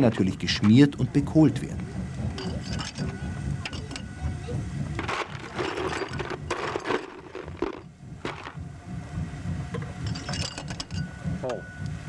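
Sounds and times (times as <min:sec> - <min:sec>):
low steady rumble: 0:00.0 - 0:12.0
clatters and scrapes: 0:02.3 - 0:04.1, 0:05.0 - 0:08.6, 0:10.0 - 0:11.1.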